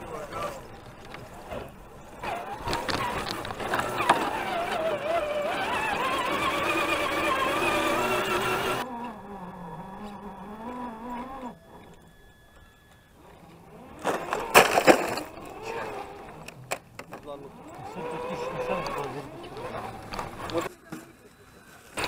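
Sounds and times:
electric motor and gears whining: 0:00.0 - 0:22.0
fainter lower motor whine: 0:00.0 - 0:22.0
sharp clacks and crackles: 0:00.3 - 0:04.8.

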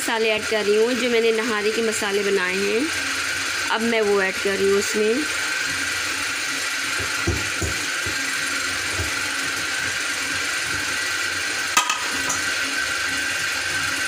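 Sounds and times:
steady kitchen hiss: 0:00.0 - 0:14.0
spoon knocking steel pot: 0:11.8 - 0:12.5.

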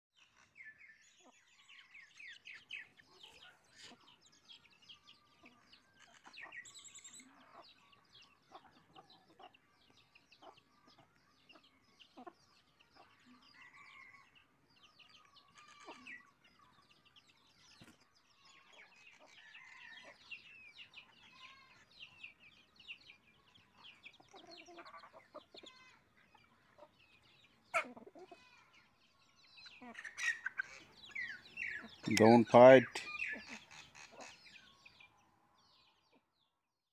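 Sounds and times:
chicks peeping: 0:00.4 - 0:13.7, 0:14.7 - 0:36.5
hens clucking: 0:23.6 - 0:29.0, 0:29.6 - 0:34.7.

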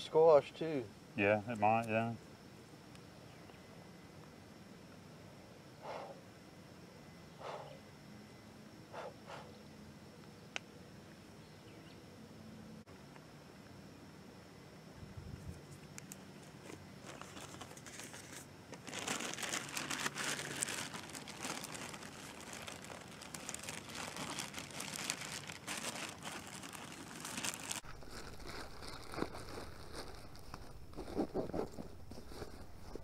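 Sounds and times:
bags crinkling: 0:16.6 - 0:33.0.

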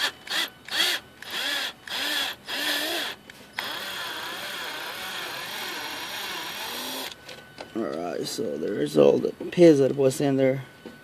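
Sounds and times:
power drill whining: 0:00.0 - 0:07.2.

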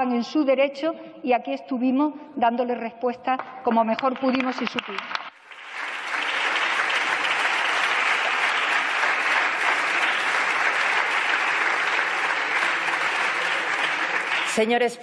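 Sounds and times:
crowd applause: 0:04.4 - 0:14.8.

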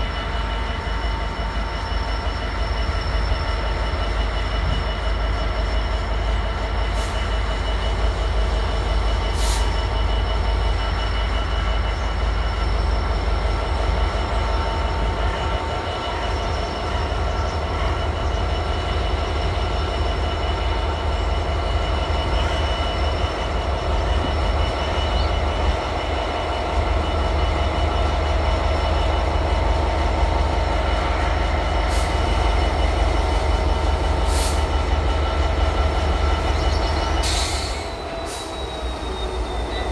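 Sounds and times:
diesel locomotive engine rumbling: 0:00.0 - 0:39.9
steady high-pitched tones: 0:00.0 - 0:39.9.

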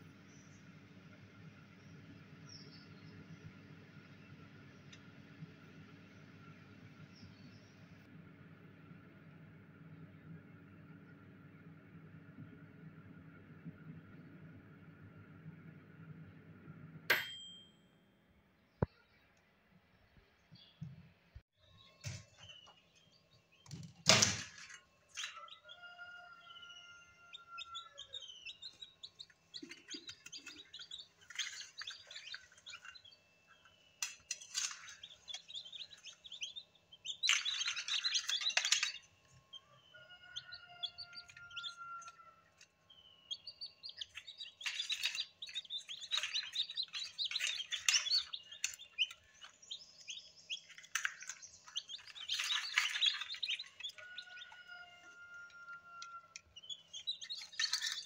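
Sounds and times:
chicks peeping: 0:25.1 - 0:58.0.

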